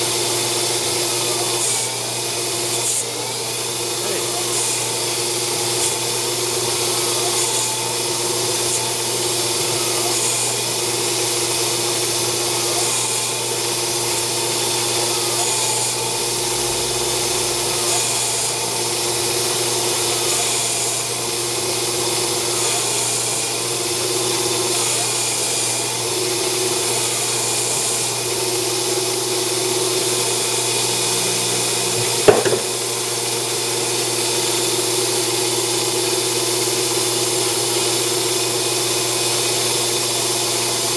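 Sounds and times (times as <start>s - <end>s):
lathe cutting metal: 0.0s - 40.9s
sharp knock: 32.0s - 32.9s.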